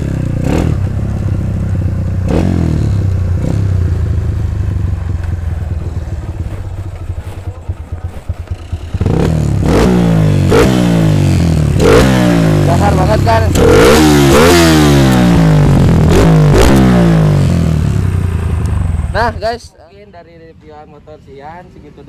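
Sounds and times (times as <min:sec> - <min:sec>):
motorcycle engine revving: 0:00.0 - 0:19.6.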